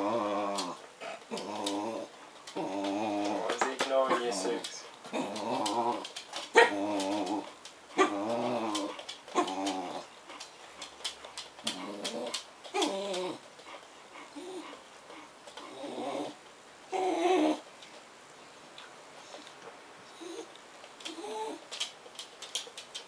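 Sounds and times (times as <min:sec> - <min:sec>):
dog whining and grumbling: 0:00.0 - 0:10.4, 0:11.6 - 0:13.5, 0:14.2 - 0:17.7, 0:20.1 - 0:21.8.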